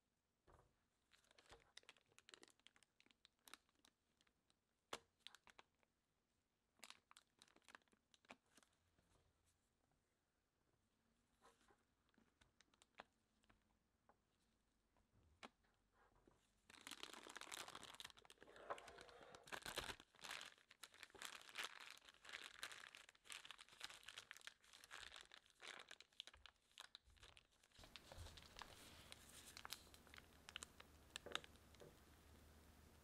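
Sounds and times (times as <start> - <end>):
plastic piping bag crinkling: 1.1 - 5.9, 6.7 - 8.8, 12.0 - 13.6, 16.6 - 32.2
faint low hum: 27.6 - 33.0.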